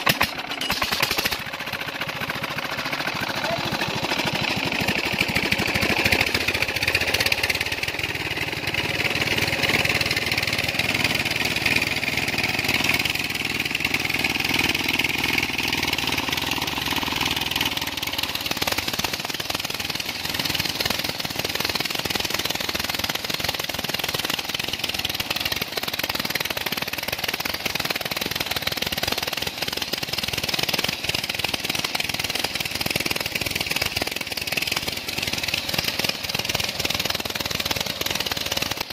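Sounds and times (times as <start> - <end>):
diesel engine knocking: 0.0 - 38.9.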